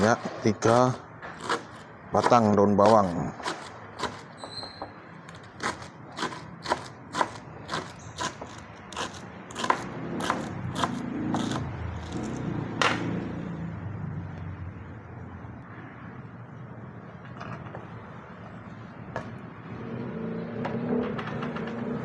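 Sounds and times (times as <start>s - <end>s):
knife chopping on cutting board: 5.6s - 11.7s.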